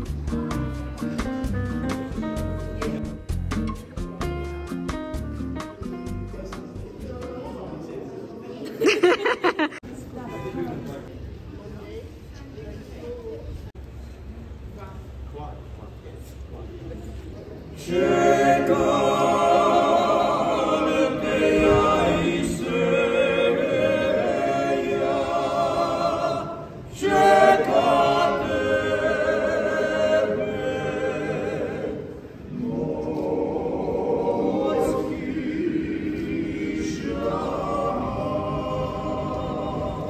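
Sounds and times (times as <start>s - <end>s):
male vocal group singing a cappella: 17.8s - 40.0s.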